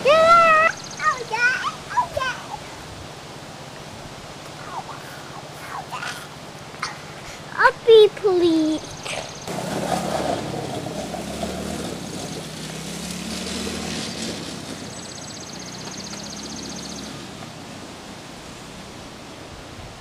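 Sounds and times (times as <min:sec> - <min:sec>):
small quad engine running: 0:08.6 - 0:19.0.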